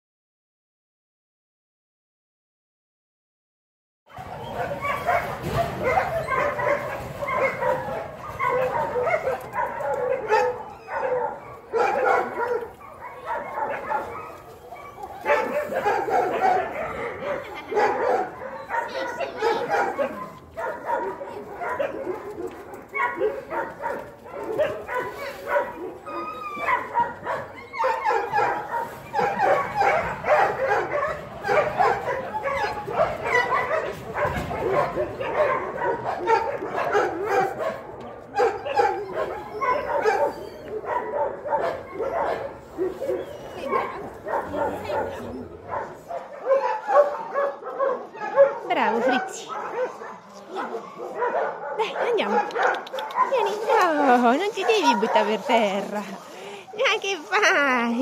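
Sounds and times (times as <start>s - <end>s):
dog whining and yipping: 4.1s - 11.7s, 12.5s - 15.8s, 25.1s - 30.4s, 38.4s - 41.0s, 41.9s - 45.6s
dog barking and yipping: 4.1s - 55.8s.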